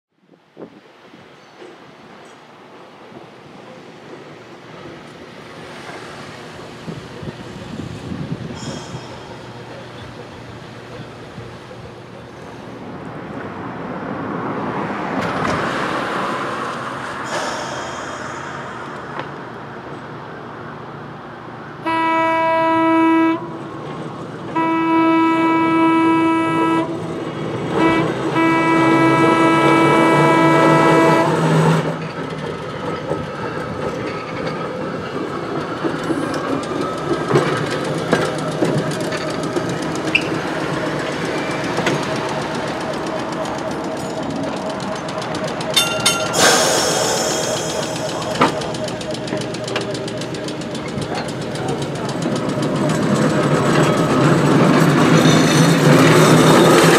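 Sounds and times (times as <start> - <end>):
trolley running rumble: 15.2 - 56.9
trolley horn: 21.8 - 23.7, 24.5 - 27.1, 27.7 - 32.0
wheels clicking over rails: 31.8 - 56.9.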